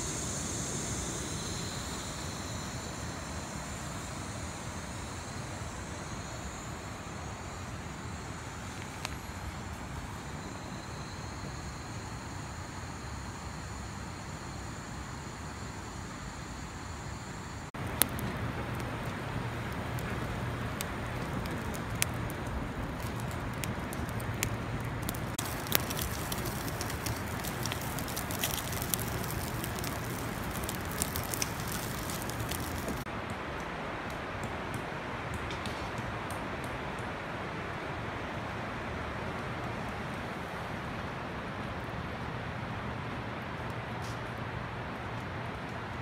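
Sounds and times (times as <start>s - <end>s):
wood fire crackling and popping: 17.8s - 33.1s.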